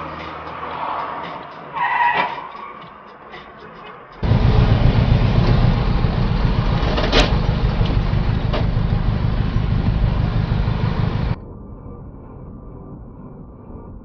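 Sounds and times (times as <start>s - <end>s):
car rumbling in traffic: 4.2s - 11.4s.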